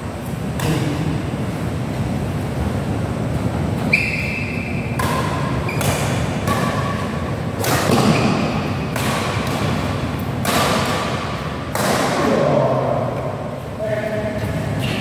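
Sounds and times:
rackets hitting shuttlecock: 0.3 - 1.3, 3.8 - 13.3.

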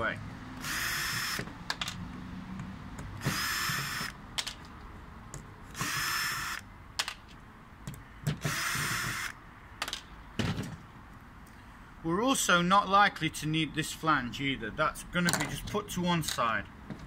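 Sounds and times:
cordless drill running: 0.6 - 1.5, 3.2 - 4.2, 5.8 - 6.6, 8.4 - 9.4.

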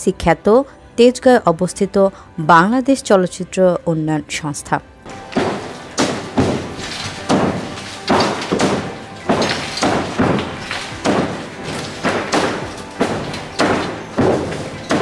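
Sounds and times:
demolition hammering on concrete: 5.1 - 15.0.

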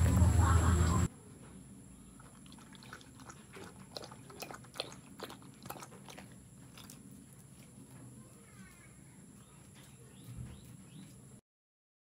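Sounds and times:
dog chewing: 2.2 - 7.8.

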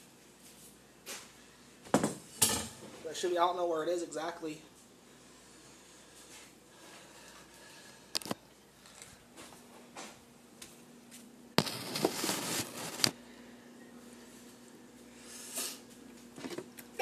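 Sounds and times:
rubbing and rustling: 11.6 - 13.2.

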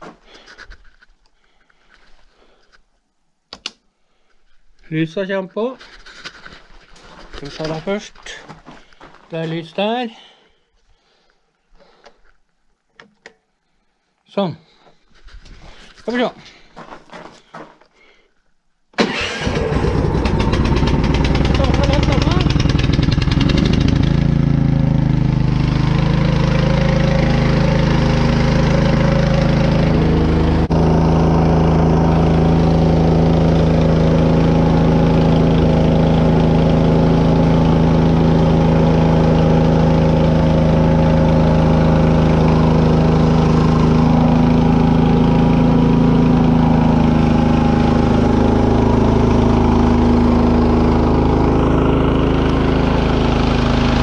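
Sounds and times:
snow blower engine running: 19.0 - 54.0.

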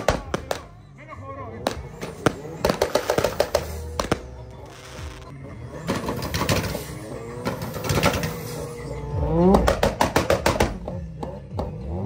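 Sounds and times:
exhaust bangs and pops: 0.0 - 0.8, 1.6 - 5.3, 9.5 - 10.9
car engine revving: 1.5 - 12.0.

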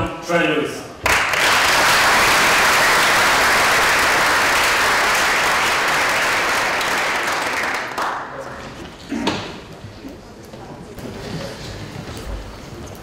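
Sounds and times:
crowd applauding: 1.0 - 8.7.

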